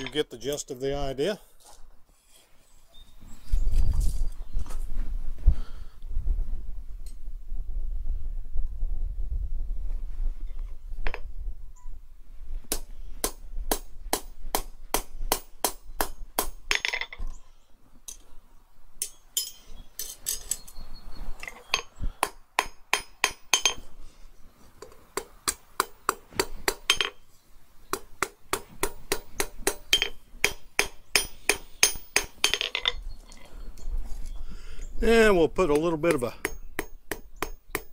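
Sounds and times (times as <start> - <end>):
hammer striking steel on anvil: 19.0 - 20.1, 21.8 - 23.8, 28.0 - 33.0, 36.1 - 37.9.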